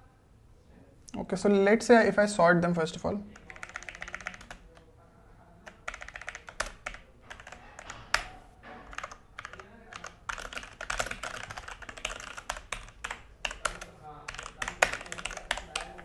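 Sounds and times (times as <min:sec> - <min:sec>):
mechanical keyboard typing: 0:03.3 - 0:04.9, 0:05.6 - 0:16.0.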